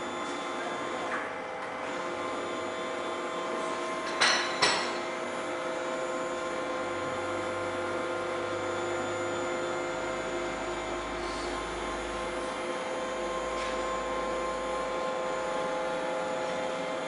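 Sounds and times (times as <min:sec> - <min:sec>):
machine humming: 0:05.1 - 0:17.0.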